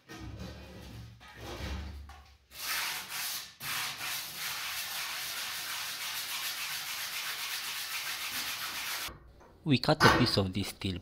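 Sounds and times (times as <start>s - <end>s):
sandpaper scratching on metal: 2.6s - 9.1s.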